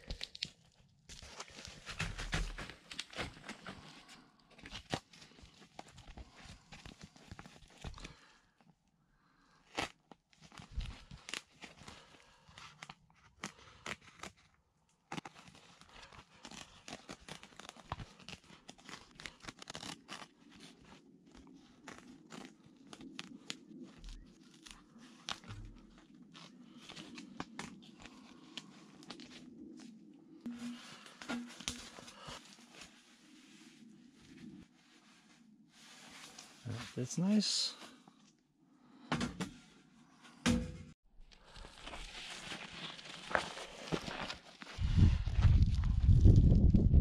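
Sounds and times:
crinkling tearing and rustling: 0.0s - 8.4s, 9.6s - 29.9s, 41.3s - 46.7s.

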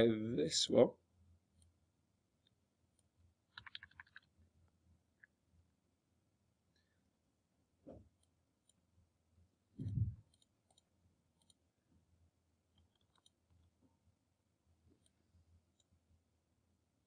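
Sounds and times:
computer mouse clicks: 3.0s - 4.3s, 9.8s - 11.6s, 12.8s - 13.7s
dull low thump: 9.8s - 10.2s.

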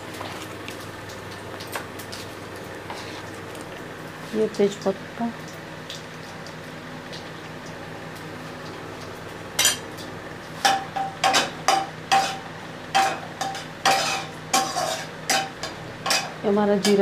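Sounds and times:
spices sizzling in hot oil: 1.8s - 17.0s
metal spatula scraping a pan: 12.1s - 12.4s, 13.0s - 16.3s.

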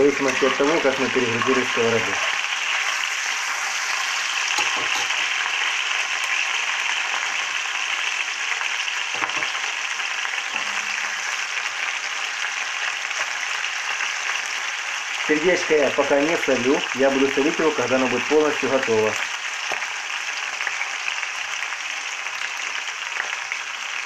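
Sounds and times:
meat sizzling in oil: 0.0s - 24.0s.

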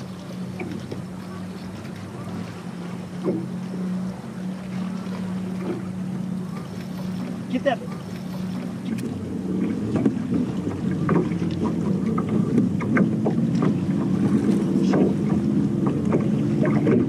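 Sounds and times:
water noise: 0.0s - 17.0s
water splashes: 0.0s - 17.0s
wind: 0.0s - 17.0s
knocks on boat: 3.2s - 3.5s, 9.9s - 17.0s.

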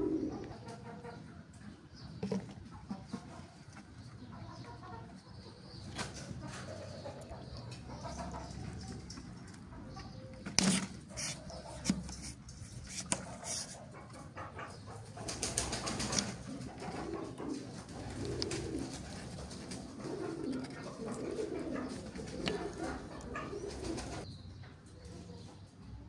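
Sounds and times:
bird cooing: 0.0s - 1.1s, 14.6s - 24.3s
awl scraping plastic bottle cap: 2.2s - 2.6s, 10.4s - 13.8s, 22.1s - 23.3s.

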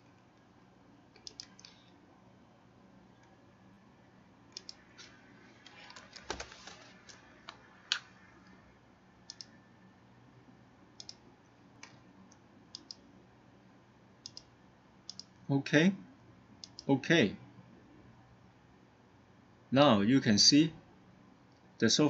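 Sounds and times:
keyboard typing: 1.1s - 2.0s, 4.5s - 8.5s, 9.3s - 9.6s, 11.0s - 11.2s, 12.7s - 13.0s, 15.1s - 15.3s
mouse clicks: 1.2s - 2.0s, 4.5s - 5.1s, 9.3s - 9.6s, 11.0s - 11.2s, 11.8s - 13.0s, 14.2s - 14.5s, 15.1s - 15.3s, 16.6s - 16.9s.

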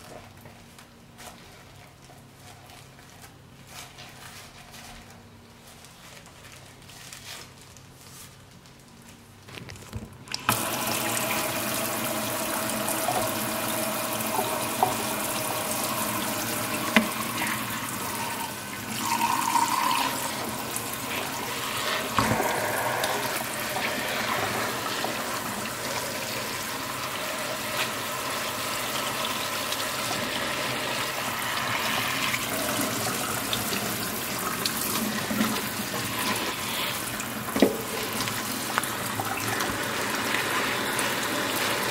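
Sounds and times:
tap running into metal sink: 10.3s - 26.0s, 37.5s - 40.5s.

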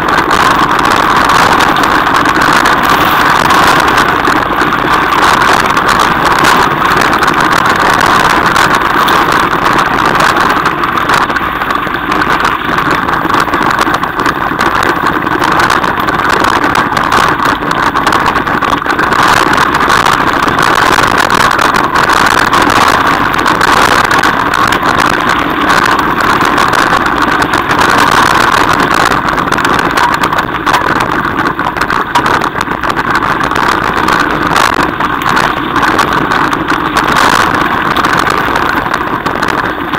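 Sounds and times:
knocks and rattles from gravel: 0.0s - 39.9s
tyre and wind rush: 0.0s - 39.9s.

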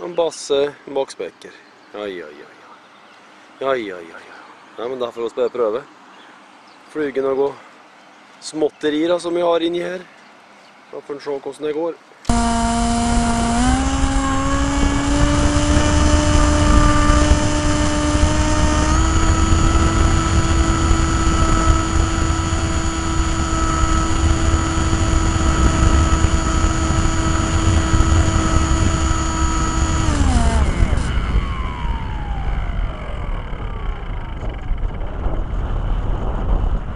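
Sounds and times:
model plane motor whine: 12.3s - 36.9s
wind rumble on microphone: 12.3s - 36.9s.

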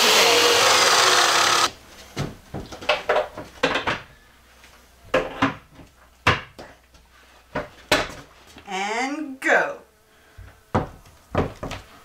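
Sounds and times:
loud whirring noise: 0.0s - 1.7s.

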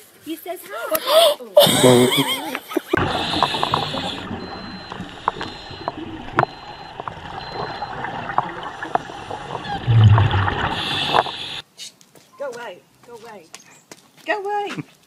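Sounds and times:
regulator exhale bubbles: 3.0s - 11.6s
underwater bubbling and gurgling: 3.0s - 11.6s.

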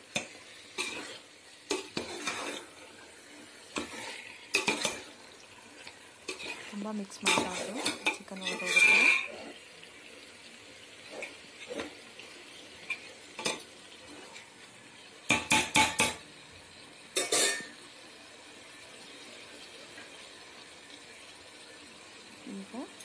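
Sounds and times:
masala sizzling: 0.0s - 23.0s
spoon scraping metal pot: 0.2s - 2.7s, 6.3s - 9.6s.

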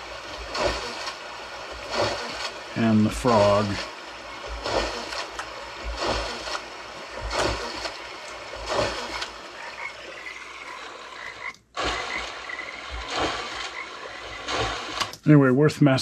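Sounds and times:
water splashes from mill wheel: 0.0s - 9.2s
frog croaking: 9.5s - 11.6s.

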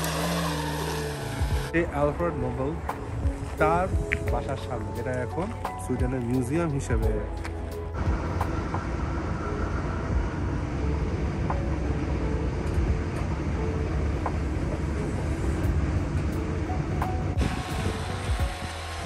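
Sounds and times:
vehicle rumble: 0.0s - 19.0s.

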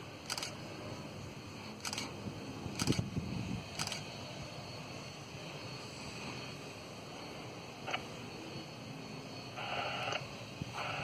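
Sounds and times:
jet engines running: 0.0s - 11.0s
sharp clicks: 0.2s - 0.6s, 1.8s - 2.1s, 2.8s - 3.0s, 3.7s - 4.1s.

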